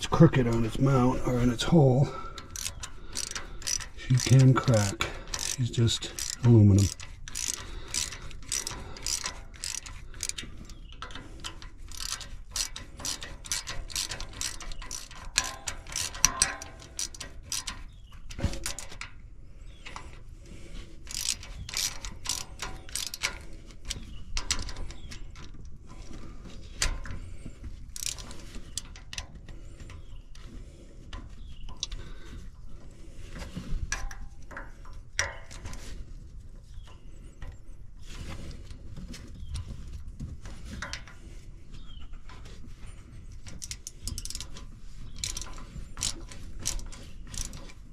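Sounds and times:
hand ratchet clicking: 0:02.1 - 0:19.1, 0:19.9 - 0:25.6, 0:27.9 - 0:29.3, 0:43.4 - 0:47.8.

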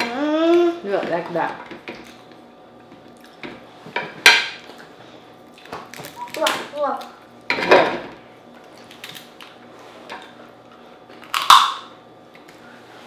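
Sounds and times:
crab shell cracking: 0:11.2 - 0:11.8.

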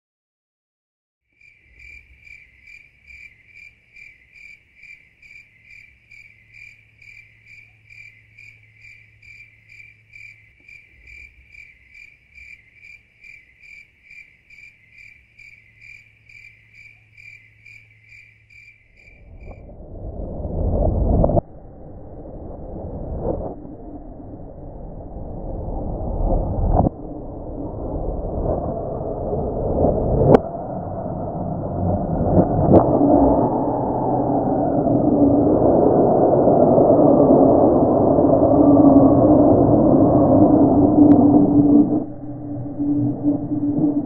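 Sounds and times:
cricket chirping: 0:01.3 - 0:20.1
faint low hum: 0:14.5 - 0:44.0
rushing noise: 0:18.9 - 0:44.0.

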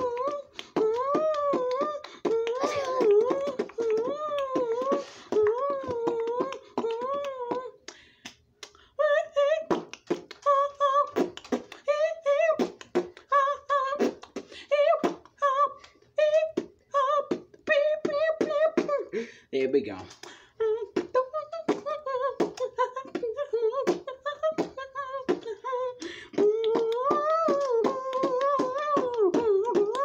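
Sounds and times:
child beatboxing: 0:00.0 - 0:07.8, 0:09.6 - 0:11.8, 0:12.4 - 0:15.3, 0:26.3 - 0:30.0.

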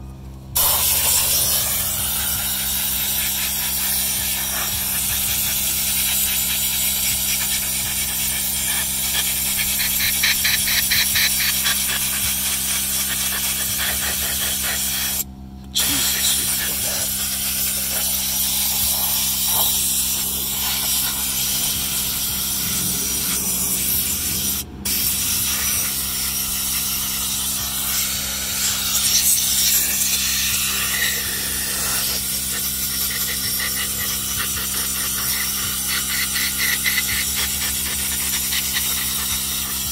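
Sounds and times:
steady low hum: 0:00.0 - 0:39.9
compressed air blow gun hissing: 0:00.6 - 0:39.9.

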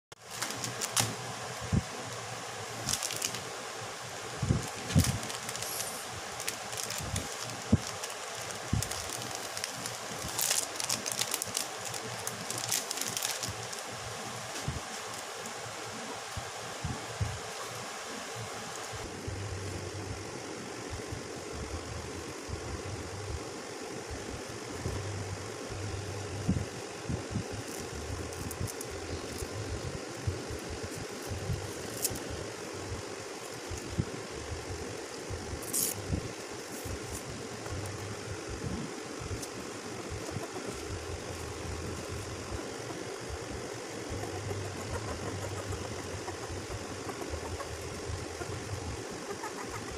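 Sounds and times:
steady hiss: 0:00.1 - 0:49.9
plastic packaging crinkling: 0:00.2 - 0:03.6, 0:04.4 - 0:15.6
low hum: 0:00.4 - 0:49.9.

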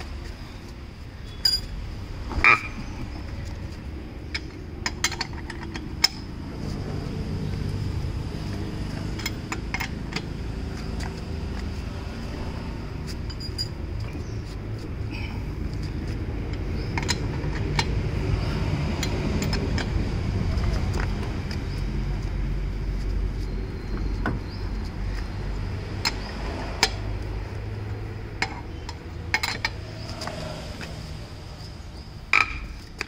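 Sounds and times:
wheel spanner clinking on nuts: 0:00.6 - 0:22.3, 0:25.9 - 0:30.4.

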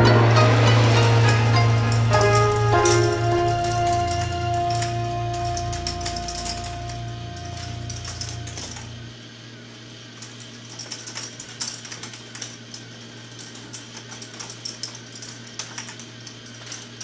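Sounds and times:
background music: 0:00.0 - 0:09.0
plastic balls clattering on track: 0:00.0 - 0:09.0, 0:10.2 - 0:17.0
steady low hum: 0:00.0 - 0:15.6.

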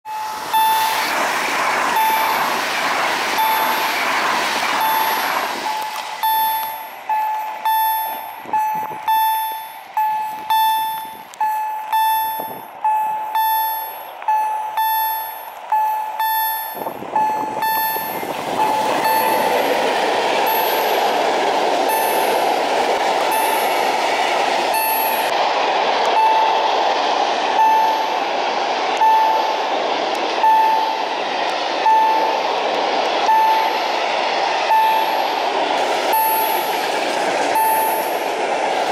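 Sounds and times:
warning bell ringing: 0:00.1 - 0:01.1, 0:04.8 - 0:24.0, 0:24.7 - 0:25.3, 0:26.0 - 0:26.8, 0:27.5 - 0:28.3, 0:30.4 - 0:31.1, 0:33.2 - 0:33.9, 0:34.7 - 0:35.4, 0:36.1 - 0:36.8.

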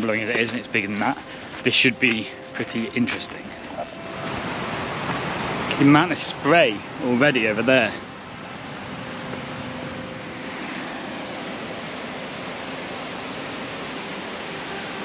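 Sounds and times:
waterfall roaring: 0:00.0 - 0:15.0.

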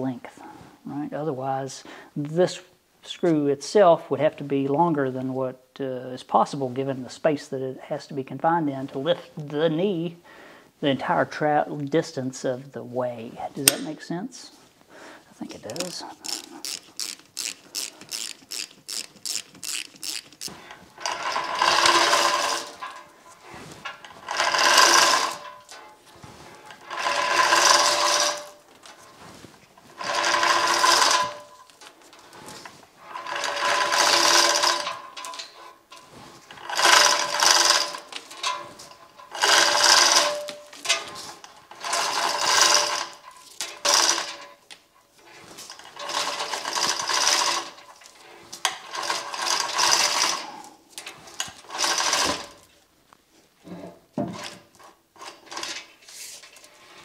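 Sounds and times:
chain hoist gear clatter: 0:15.6 - 0:52.7, 0:54.4 - 0:56.8
rapid ratchet clicking: 0:15.7 - 0:23.0, 0:24.2 - 0:25.8, 0:26.8 - 0:28.6, 0:30.0 - 0:31.8, 0:33.1 - 0:35.5, 0:36.6 - 0:38.6, 0:39.3 - 0:41.0, 0:41.7 - 0:44.4, 0:45.8 - 0:47.8, 0:48.6 - 0:50.4, 0:51.7 - 0:52.5.

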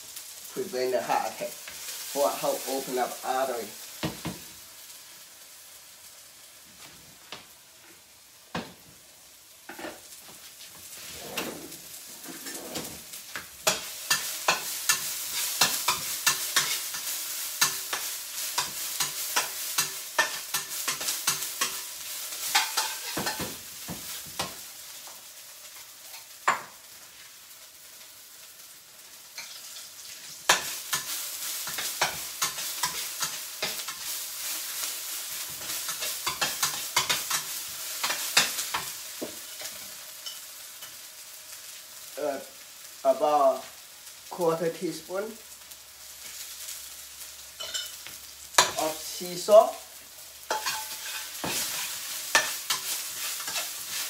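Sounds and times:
food sizzling in fat: 0:00.0 - 0:54.0
utensil tapping and scraping pan: 0:13.6 - 0:21.8, 0:22.4 - 0:24.6, 0:30.5 - 0:34.1, 0:35.6 - 0:40.4, 0:50.5 - 0:54.0.

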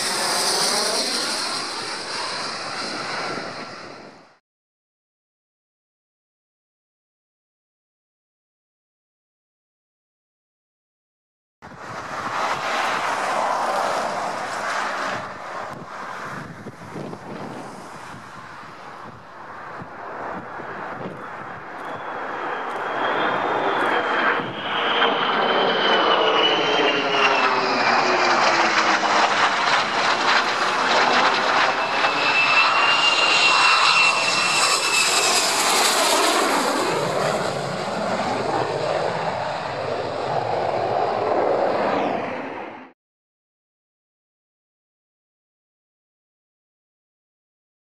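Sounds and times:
fighter jet engines roaring: 0:00.0 - 0:04.4, 0:11.7 - 0:42.9
high jet whine dropping in pitch: 0:00.0 - 0:04.4, 0:11.7 - 0:42.9.

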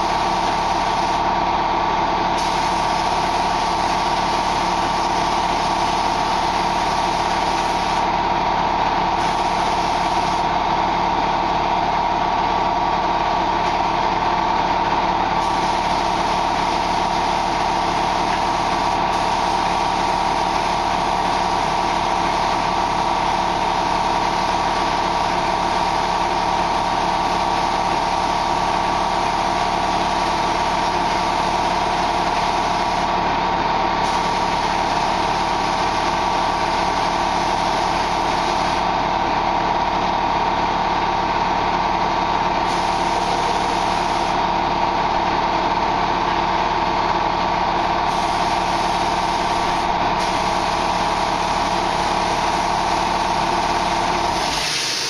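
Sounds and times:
spray painting machine drone: 0:00.0 - 0:08.2, 0:08.9 - 0:12.6, 0:13.4 - 0:38.9, 0:42.4 - 0:46.6, 0:47.6 - 0:55.0.

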